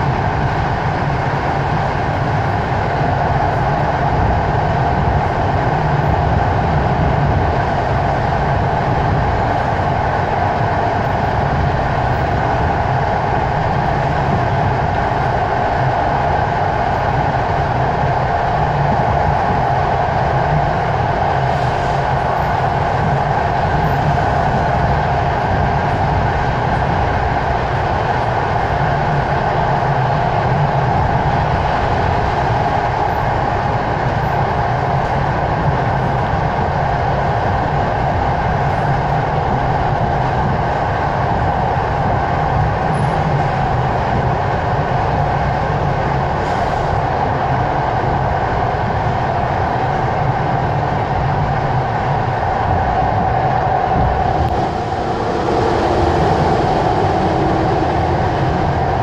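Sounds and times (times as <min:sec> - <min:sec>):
constant hum: 0:00.0 - 0:59.0
train wheels rumbling: 0:00.0 - 0:59.0.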